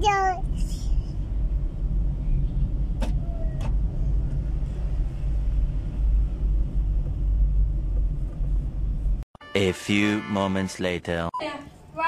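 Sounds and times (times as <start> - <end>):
car engine rumble and road noise: 0.0 - 9.3.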